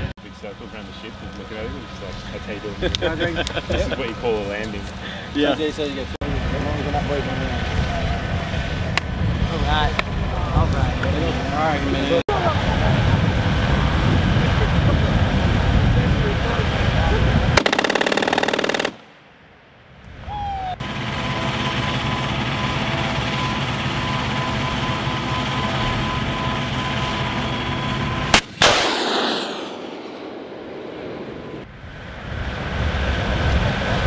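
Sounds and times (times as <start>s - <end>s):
vehicle engine drone: 0.0s - 28.7s, 29.7s - 34.0s
sharp cracks: 17.6s - 19.4s, 28.3s - 31.2s
missile rushing: 28.3s - 34.0s.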